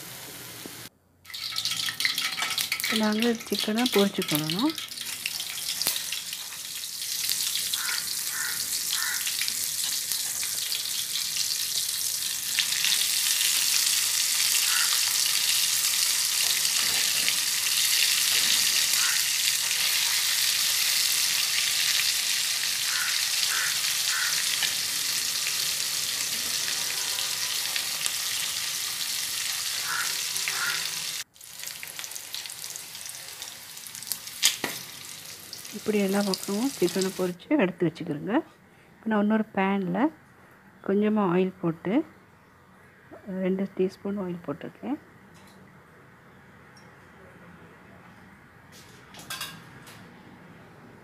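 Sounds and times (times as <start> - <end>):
chicken frying in hot oil: 0.0 - 37.3.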